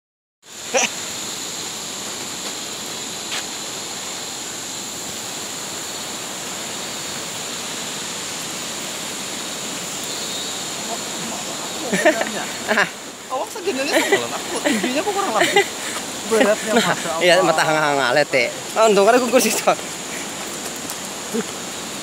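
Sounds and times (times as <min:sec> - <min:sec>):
forest ambience hiss: 0:00.4 - 0:22.0.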